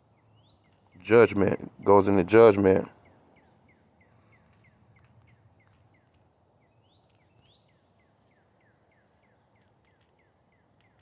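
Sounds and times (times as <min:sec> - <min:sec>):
faint clicks: 0:00.6 - 0:01.0, 0:04.3 - 0:06.3, 0:07.0 - 0:07.7, 0:09.5 - 0:11.0.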